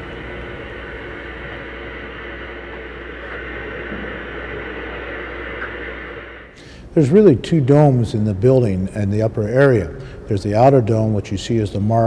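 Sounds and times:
machinery hiss: 0.0 - 8.3
machinery low hum: 0.0 - 12.0.

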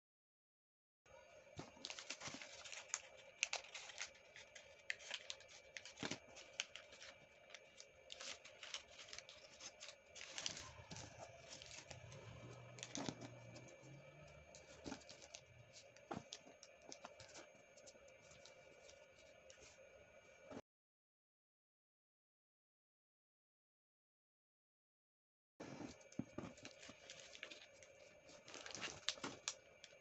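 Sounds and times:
paper rustling and crinkling: 1.6 - 19.8, 25.7 - 30.0.

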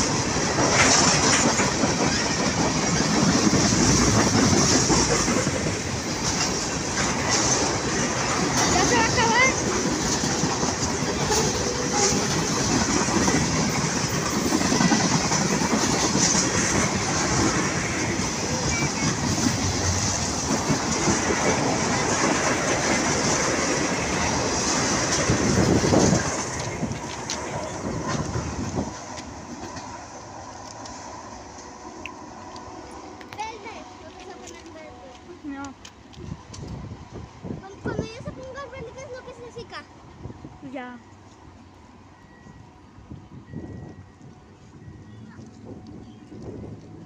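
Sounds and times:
freight train wheels on rails: 0.0 - 47.0.

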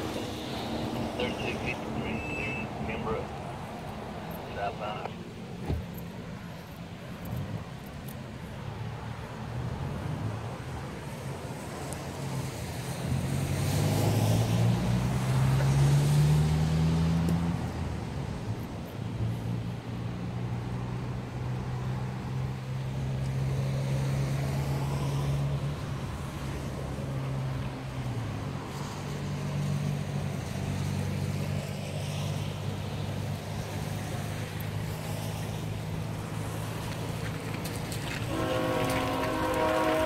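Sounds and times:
diesel locomotive engines humming: 0.0 - 13.1, 32.5 - 40.0.

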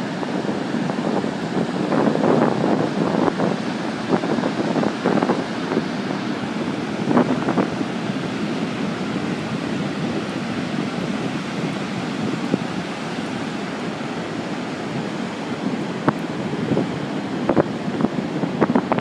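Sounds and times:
ocean surf breaking: 0.0 - 19.0
wind on microphone: 0.0 - 19.0.

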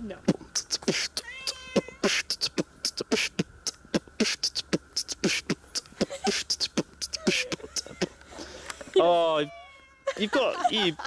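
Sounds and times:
person beatboxing: 0.2 - 8.2.

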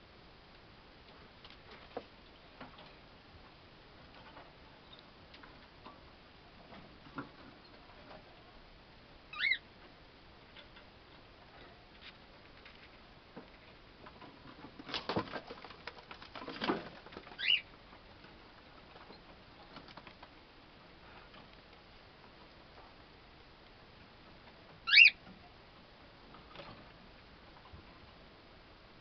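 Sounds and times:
cockatiel chirps: 9.3 - 9.6, 17.4 - 17.6, 24.9 - 25.2.

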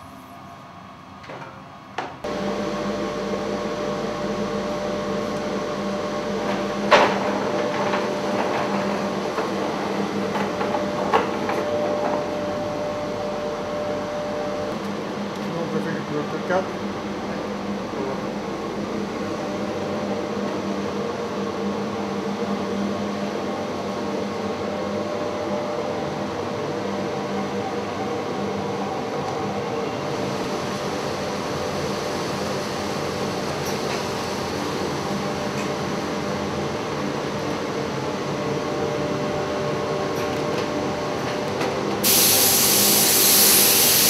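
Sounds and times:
workshop machinery hum: 0.0 - 44.0
hiss: 42.0 - 44.0.

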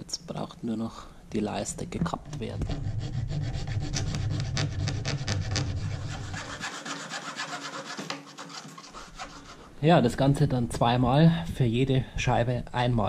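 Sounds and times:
hacksaw cutting plastic: 2.4 - 9.7.

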